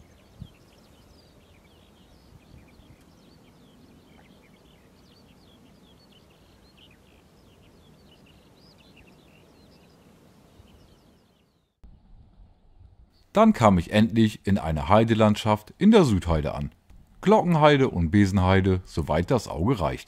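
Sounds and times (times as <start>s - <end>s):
small birds chirping: 0.0s - 11.8s.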